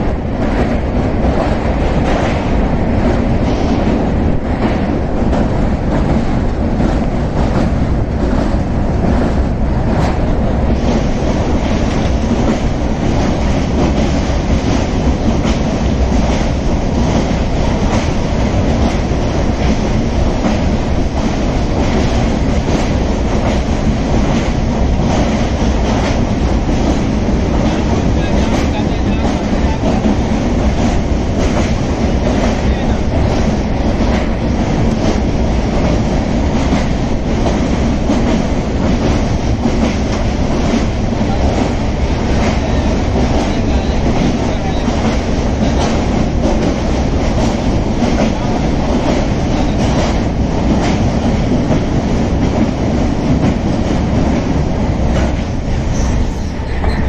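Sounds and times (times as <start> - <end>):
train rumbling over bridge: 0.0 - 57.0.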